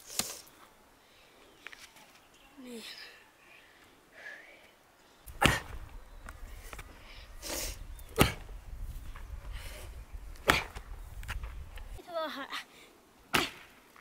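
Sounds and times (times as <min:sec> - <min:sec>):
axe chopping into log: 0:05.3 - 0:05.9, 0:08.2 - 0:08.5, 0:10.4 - 0:11.5, 0:13.3 - 0:13.7.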